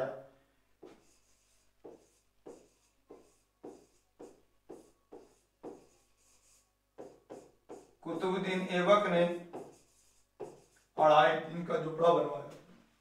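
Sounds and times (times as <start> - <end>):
writing scratching on board: 0.8 - 11.0.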